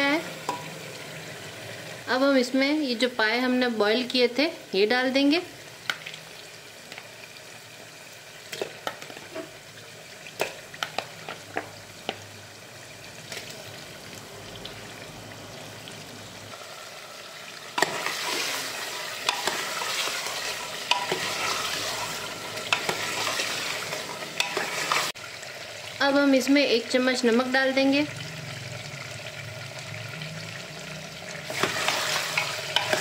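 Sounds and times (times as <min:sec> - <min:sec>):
food sizzling in hot oil: 0:00.0 - 0:33.0
spoon stirring: 0:19.2 - 0:25.1.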